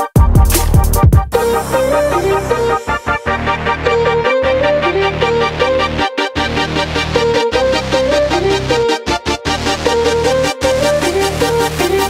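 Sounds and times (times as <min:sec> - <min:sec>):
electronic music: 0:00.0 - 0:12.0.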